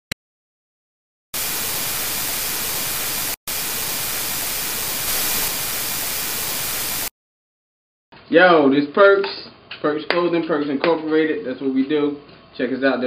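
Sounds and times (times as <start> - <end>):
television static hiss: 1.4 - 7.1.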